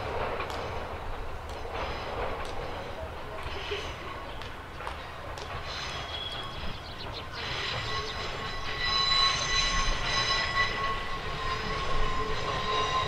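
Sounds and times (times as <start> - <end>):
train running rumble: 0.0 - 13.0
train wheels squealing: 0.6 - 13.0.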